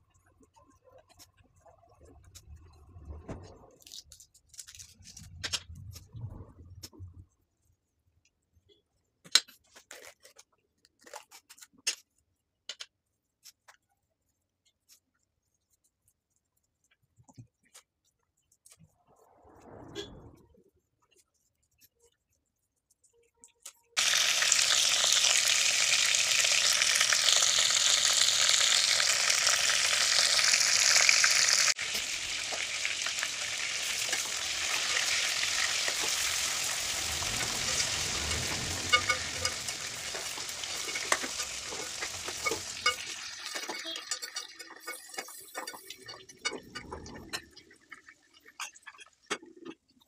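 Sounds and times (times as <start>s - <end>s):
food sizzling in hot oil: 24.0s - 46.5s
spoon scraping metal pot: 37.4s - 47.5s.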